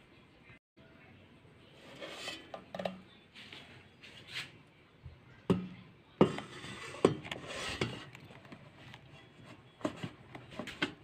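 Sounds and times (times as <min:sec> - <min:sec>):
basket rubbing and scraping: 0:01.8 - 0:02.7, 0:06.2 - 0:11.0.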